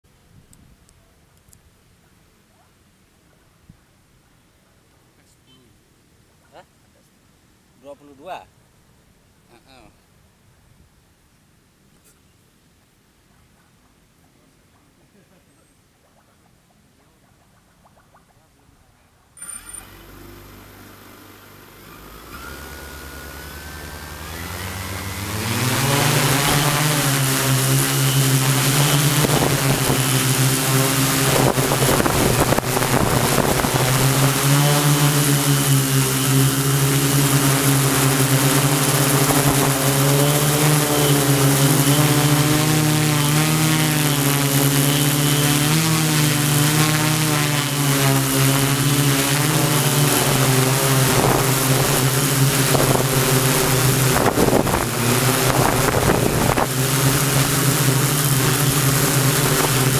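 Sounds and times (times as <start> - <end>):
drone propellers buzzing: 19.4 - 59.9
wind buffeting microphone: 31.0 - 34.3, 51.1 - 56.9.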